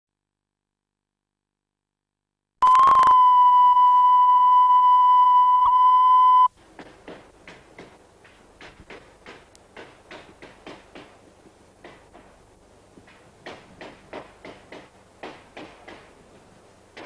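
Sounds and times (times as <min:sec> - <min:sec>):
steady test tone: 0:02.6 - 0:06.5.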